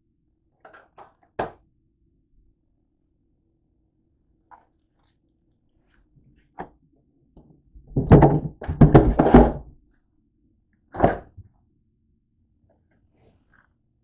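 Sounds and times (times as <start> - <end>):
household items thunking and knocking: 7.8 - 9.8, 11.0 - 11.5.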